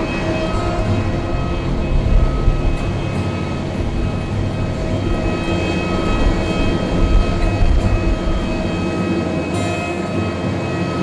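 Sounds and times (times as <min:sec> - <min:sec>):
jet engines whining: 0:00.0 - 0:11.0.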